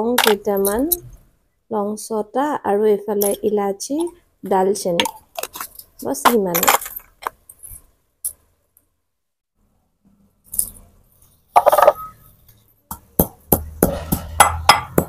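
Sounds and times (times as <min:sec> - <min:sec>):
pestle pounding in a mortar: 0:12.9 - 0:15.0
spices rattling in a mortar: 0:12.9 - 0:15.0.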